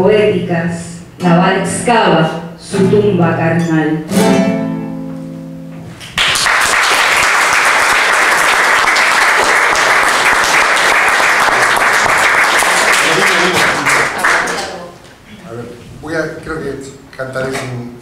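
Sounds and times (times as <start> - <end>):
guitar chord ringing: 3.6 - 5.9
audience applause: 6.2 - 15.0.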